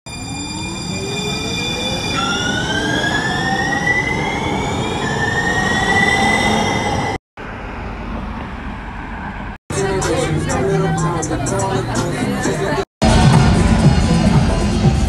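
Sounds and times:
train traction motors whining: 0:00.1 - 0:07.2
wheels rumbling on rails: 0:00.1 - 0:12.0.

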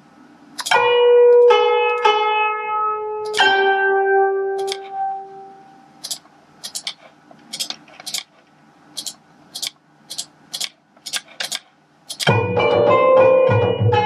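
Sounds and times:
synthesized plucked notes: 0:00.6 - 0:06.0, 0:12.3 - 0:14.0
computer mouse and keyboard clicks: 0:04.6 - 0:04.9, 0:06.0 - 0:12.3.

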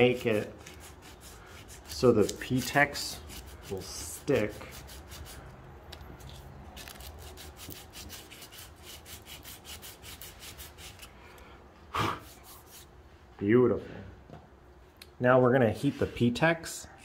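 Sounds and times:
sandpaper scratching on ski base: 0:00.0 - 0:05.4, 0:06.3 - 0:11.1.

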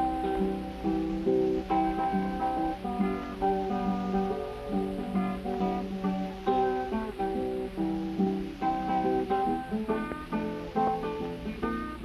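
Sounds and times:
acoustic guitar plucked notes: 0:00.0 - 0:12.0.

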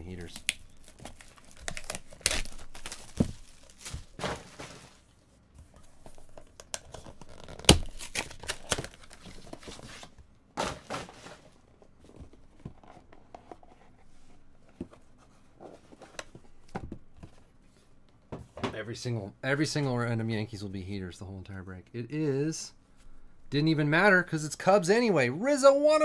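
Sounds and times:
packaging rustling: 0:00.0 - 0:05.2, 0:05.8 - 0:11.5.

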